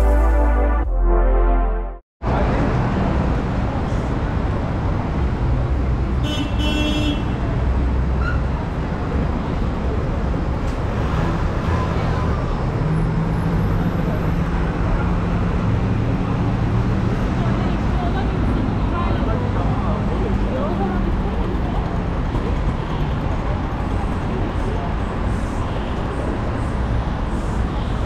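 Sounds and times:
tyres on the road: 2.2 - 28.0
car horn toot: 6.2 - 7.4
vehicle engines running: 7.4 - 28.0.

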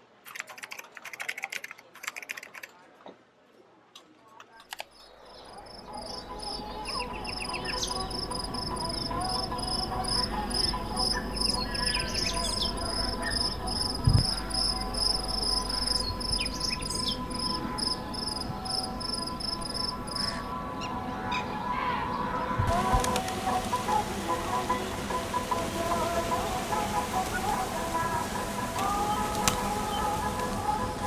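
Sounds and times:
insects chirping: 4.8 - 20.9, 22.7 - 31.0
birds chirping and calling: 4.8 - 31.0.

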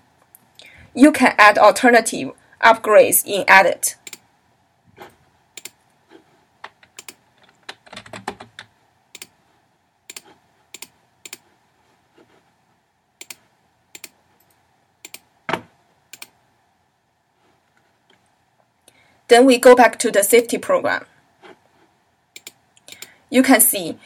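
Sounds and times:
mouse clicks: 4.0 - 4.3, 5.6 - 5.8, 6.9 - 7.2, 9.1 - 9.4, 10.1 - 11.4, 13.2 - 14.2, 15.0 - 15.3, 16.1 - 16.4, 22.4 - 23.2
keyboard typing: 5.6 - 5.8, 6.6 - 9.4, 10.1 - 11.5, 13.2 - 15.3, 16.1 - 16.4, 22.4 - 23.2.

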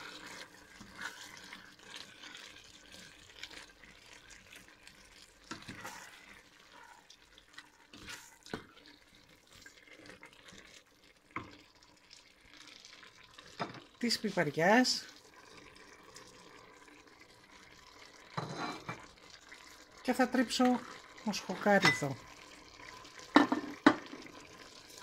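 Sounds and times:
spoon stirring thick stew: 0.0 - 11.8.

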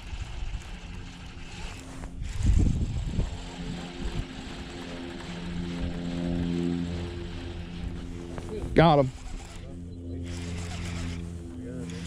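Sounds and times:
wind buffeting microphone: 0.0 - 9.6
motor drone: 0.0 - 12.0.

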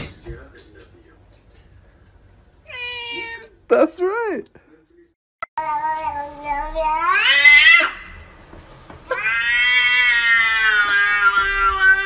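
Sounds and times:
cat yowling: 2.7 - 3.5, 6.8 - 8.1, 9.1 - 12.0.

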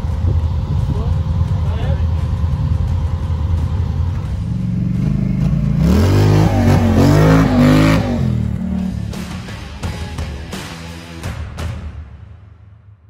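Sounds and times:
vehicle engine at low revs: 0.0 - 11.3
quad engine revving past: 4.1 - 9.6.

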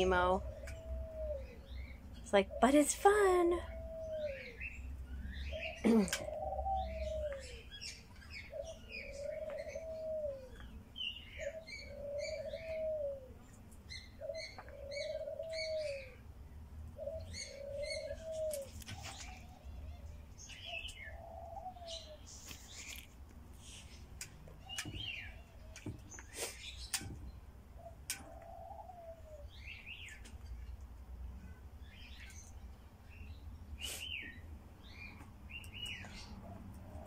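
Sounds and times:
dove cooing: 0.0 - 4.8, 5.4 - 16.3, 17.0 - 19.6, 20.6 - 22.8, 27.8 - 30.0
small songbirds chirping: 0.0 - 37.0.

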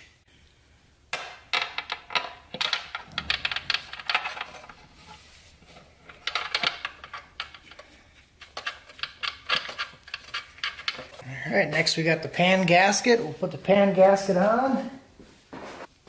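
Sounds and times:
small metallic clicks and rattles: 1.5 - 4.8, 6.1 - 11.2.

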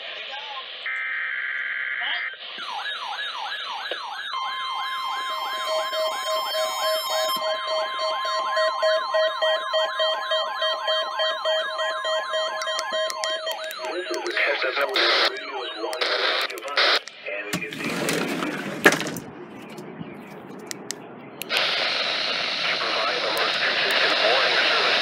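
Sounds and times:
warbling alarm siren: 2.6 - 16.0
steady alarm tones: 2.6 - 16.3
pulsing beep: 5.2 - 14.6
radio static burst: 13.6 - 19.3, 21.4 - 25.0.

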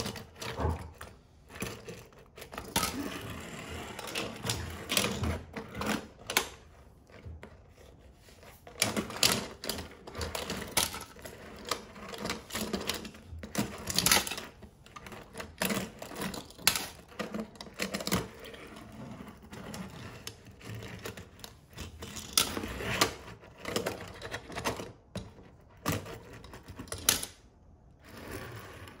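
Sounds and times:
toy cars rolling on wood: 0.0 - 29.0
toy cars clacking together: 8.7 - 18.4, 20.2 - 27.4.

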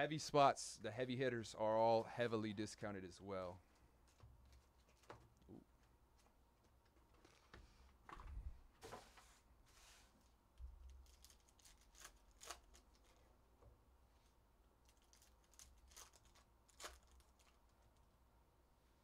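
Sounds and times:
foil wrappers crinkling: 10.8 - 13.3, 14.8 - 18.0.

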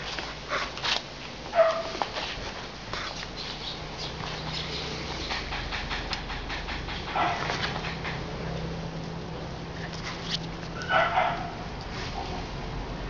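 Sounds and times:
puppy yip: 1.6 - 2.0, 10.8 - 11.5
puppy claws clicking on concrete: 4.0 - 8.2.

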